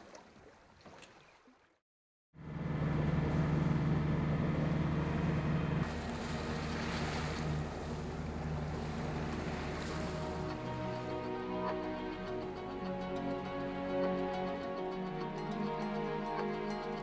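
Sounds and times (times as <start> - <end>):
water wash and wind: 0.0 - 1.8, 2.8 - 12.8
boat engine humming: 2.4 - 17.0.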